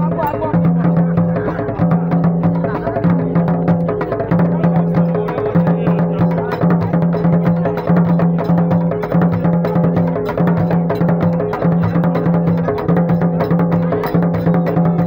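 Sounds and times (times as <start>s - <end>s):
hand drums playing fast rhythm: 0.0s - 15.0s.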